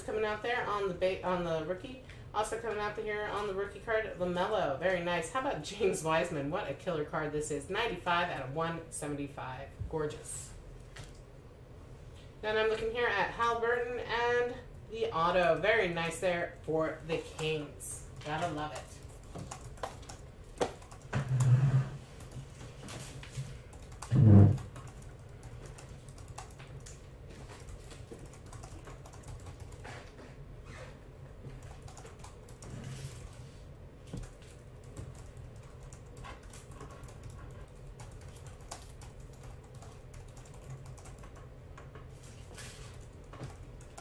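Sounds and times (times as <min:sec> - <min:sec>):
laptop keyboard typing: 0:18.2 - 0:21.6, 0:22.2 - 0:30.1, 0:31.5 - 0:32.8, 0:34.2 - 0:42.4, 0:43.0 - 0:44.0.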